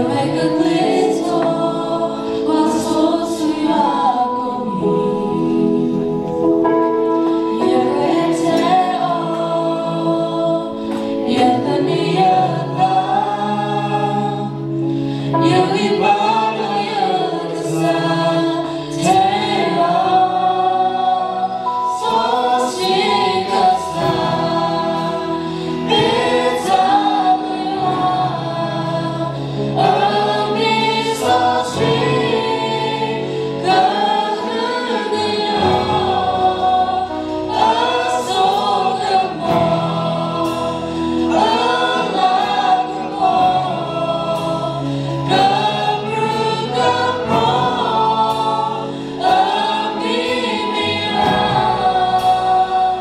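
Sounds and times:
group singing gospel song: 0:00.0 - 0:53.0
drums: 0:17.7 - 0:53.0.

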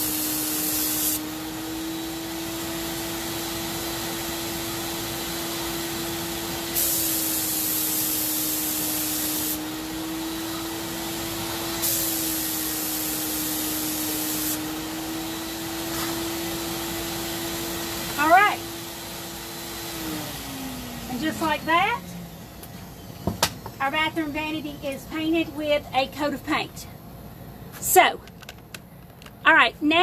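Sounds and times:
spray gun hissing: 0:00.0 - 0:01.8, 0:02.6 - 0:19.8
sprayer turbine whine: 0:00.0 - 0:27.5.

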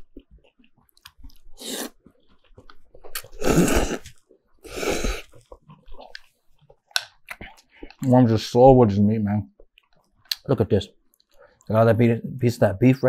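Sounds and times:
chewing: 0:00.0 - 0:08.1
person slurping noodles: 0:01.5 - 0:02.0, 0:03.2 - 0:05.6.

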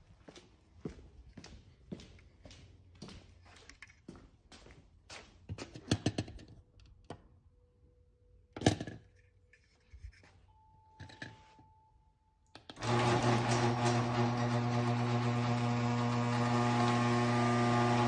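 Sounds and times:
garage door opener motor humming: 0:12.8 - 0:18.0.

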